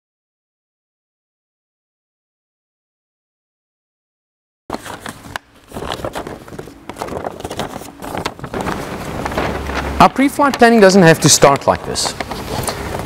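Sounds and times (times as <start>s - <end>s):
paper rustling and crinkling: 4.7s - 13.0s.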